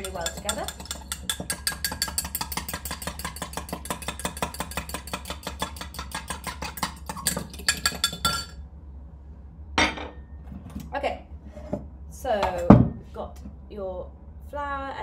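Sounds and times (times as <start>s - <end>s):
fork clinking against mug: 0.0s - 8.6s.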